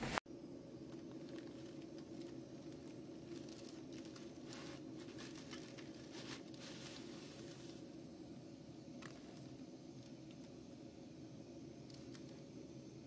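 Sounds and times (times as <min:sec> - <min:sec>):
steady low hum: 0:00.0 - 0:13.0
paper bag crinkling: 0:00.9 - 0:07.9.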